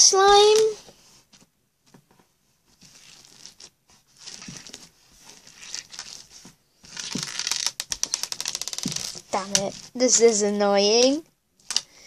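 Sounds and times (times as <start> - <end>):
slime crackling and rustling: 2.7 - 11.2.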